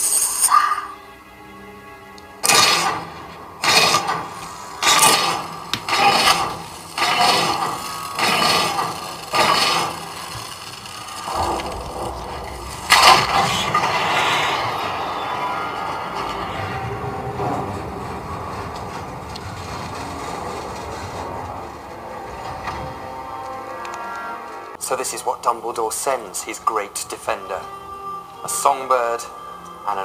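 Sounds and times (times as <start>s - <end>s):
low rumble of door mechanism: 11.0s - 23.4s.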